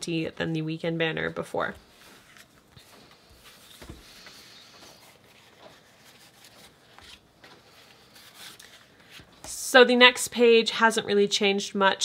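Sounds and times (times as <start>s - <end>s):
paper sticker sheets rustling: 1.3s - 9.6s.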